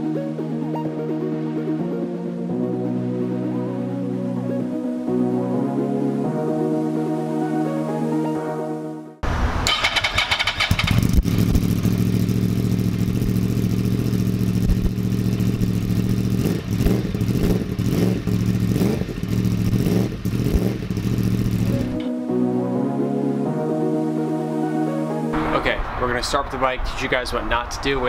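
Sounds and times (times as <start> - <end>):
motorcycle throttle blips: 9.5 - 22.1
motorcycle engine idling: 9.7 - 22.0.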